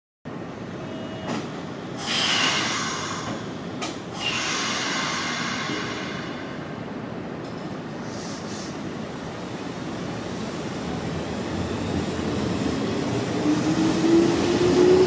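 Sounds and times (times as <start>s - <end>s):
train rumbling on rails: 0.3s - 15.0s
train brakes squealing: 0.8s - 3.4s, 4.2s - 6.6s.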